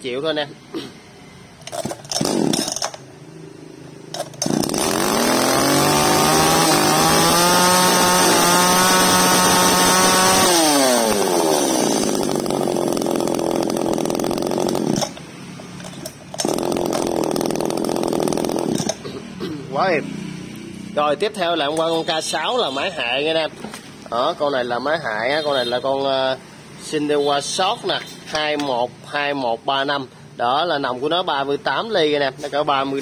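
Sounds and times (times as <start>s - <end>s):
chainsaw engine revving and idling: 1.7s - 3.0s, 4.2s - 15.2s, 15.8s - 19.1s.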